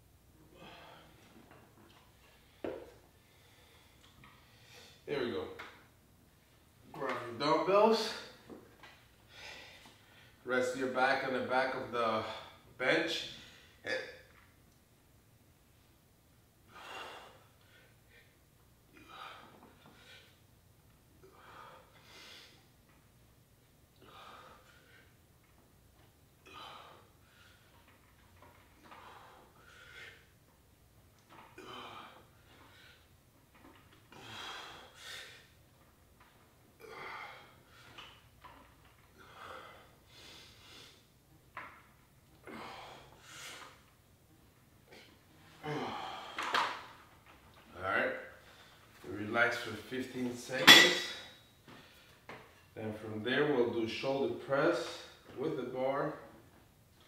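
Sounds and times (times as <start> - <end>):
man breathing hard: 0.5 - 1.4, 9.2 - 10.4, 16.7 - 18.4, 24.0 - 25.2, 34.1 - 35.6, 39.2 - 41.1, 45.6 - 46.6.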